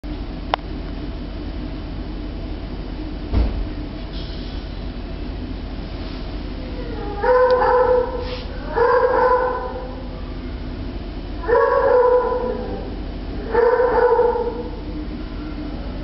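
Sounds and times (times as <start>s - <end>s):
animal crying: 6.6s - 10.4s, 11.4s - 16.0s.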